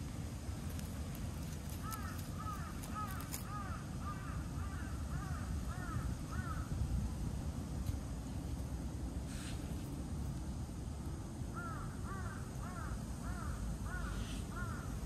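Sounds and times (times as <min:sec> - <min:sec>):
steady low rumble: 0:00.0 - 0:13.9
crow cawing: 0:01.8 - 0:06.7, 0:11.5 - 0:15.0.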